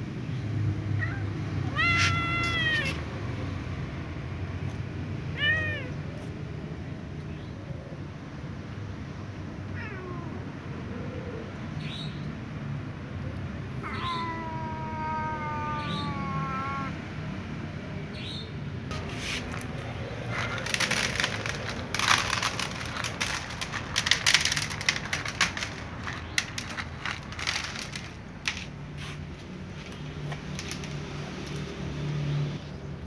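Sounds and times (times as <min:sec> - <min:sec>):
cats crunching dry kibble: 0:18.9 - 0:31.7.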